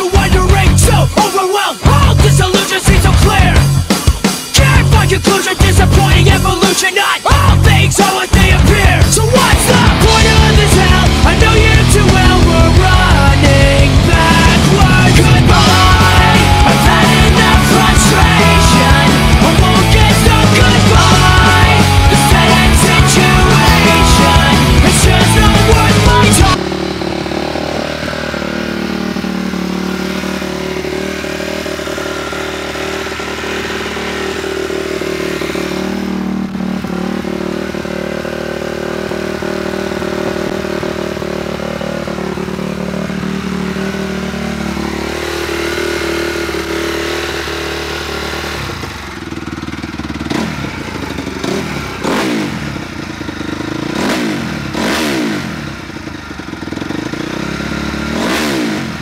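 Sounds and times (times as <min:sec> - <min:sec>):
motorcycle engine idling and revving: 0:00.0 - 0:59.0.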